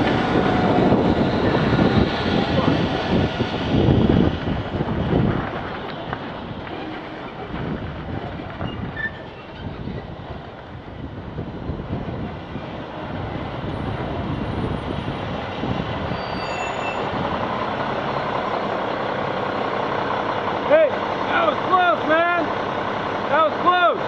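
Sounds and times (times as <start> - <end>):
street rumble: 0.0 - 24.0
diesel truck engine idling: 17.0 - 24.0.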